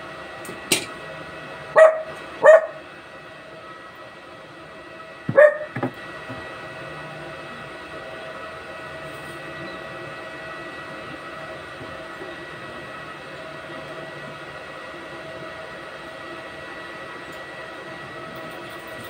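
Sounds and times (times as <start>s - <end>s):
dog barking: 1.8s - 2.8s, 5.3s - 5.7s.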